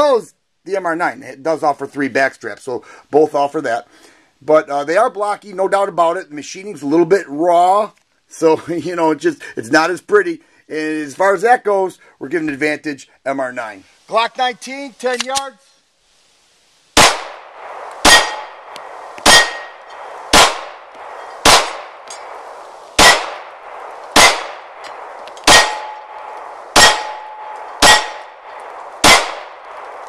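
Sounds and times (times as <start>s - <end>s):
pistol shots: 17.0s - 30.0s
metal plate target clanging: 18.0s - 29.9s.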